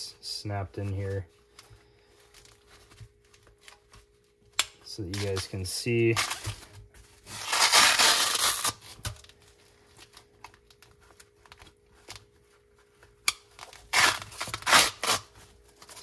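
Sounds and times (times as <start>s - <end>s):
velcro ripping: 6.1s - 6.5s, 7.3s - 9.1s, 13.6s - 16.0s.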